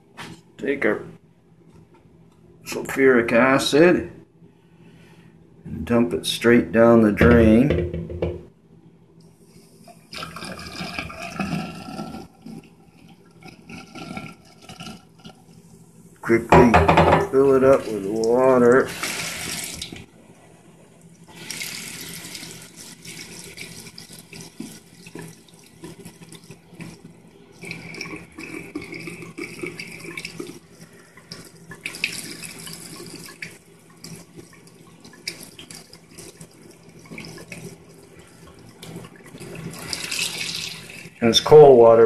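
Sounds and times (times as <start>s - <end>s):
water running into a sink drain: 9.9s - 15.6s, 16.2s - 20.1s, 21.1s - 41.9s.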